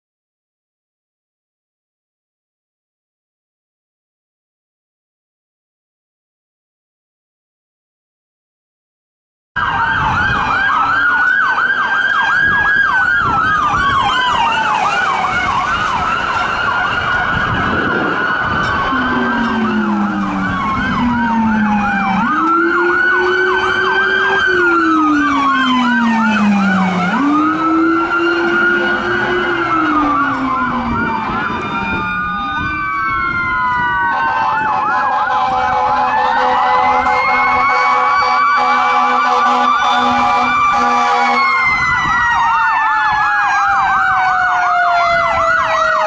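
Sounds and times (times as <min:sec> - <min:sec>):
deep siren wail: 0:09.6 - 0:46.0
siren wail: 0:09.6 - 0:46.0
siren yelp: 0:09.6 - 0:46.0.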